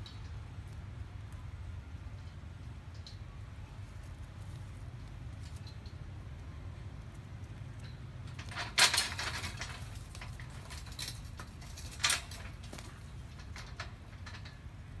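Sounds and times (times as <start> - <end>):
clattering knocks on metal scaffolding: 8.3 - 14.6.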